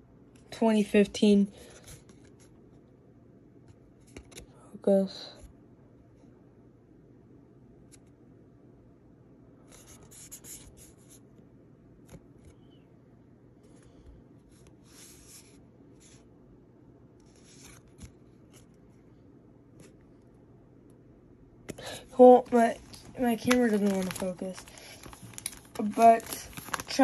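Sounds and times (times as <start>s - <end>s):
low room hum: 0.0s - 27.0s
card rustling on plastic sleeves: 1.6s - 2.8s, 9.6s - 11.3s, 13.6s - 16.3s, 17.2s - 19.0s, 21.8s - 27.0s.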